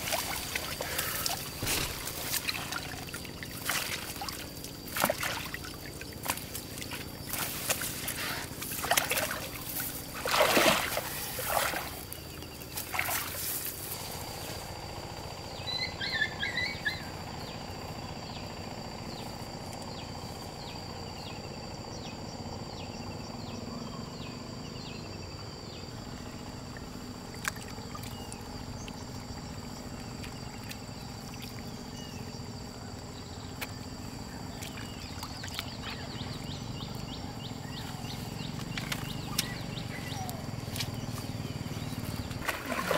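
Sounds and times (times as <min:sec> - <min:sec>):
water splashing and sloshing: 0:00.0 - 0:14.5, 0:26.2 - 0:42.9
outdoor background: 0:00.0 - 0:42.9.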